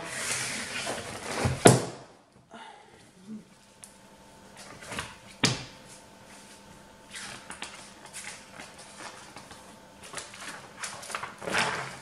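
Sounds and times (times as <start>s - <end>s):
paper pages flipping: 7.1s - 12.0s.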